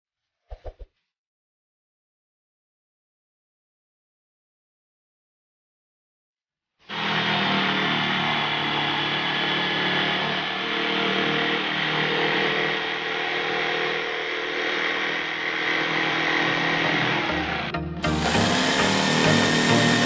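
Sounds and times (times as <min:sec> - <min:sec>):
electric jigsaw cutting board: 0:06.8 - 0:20.0.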